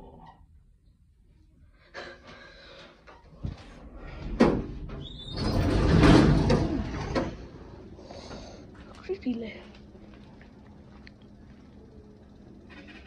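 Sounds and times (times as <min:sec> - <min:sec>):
lift doors sliding open: 0:03.8 - 0:08.6.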